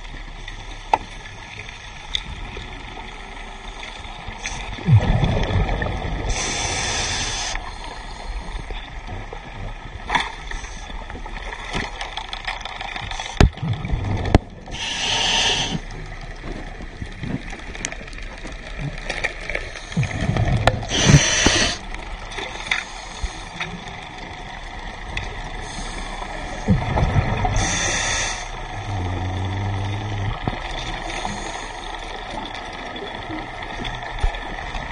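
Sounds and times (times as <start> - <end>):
low steady hum: 0.0 - 34.9
rumbling exhaust bubbles: 2.2 - 34.9
hissing regulator inhale: 6.3 - 8.8, 14.7 - 15.9, 19.7 - 21.9, 25.6 - 26.7, 27.5 - 32.2.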